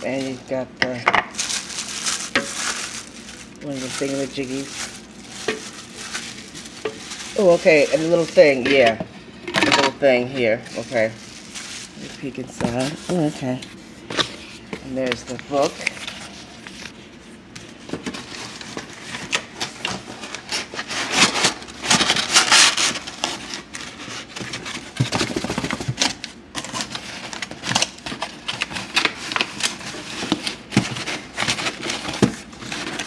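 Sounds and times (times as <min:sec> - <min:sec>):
cardboard and paper rustling: 0:01.3 - 0:09.0, 0:09.6 - 0:33.0.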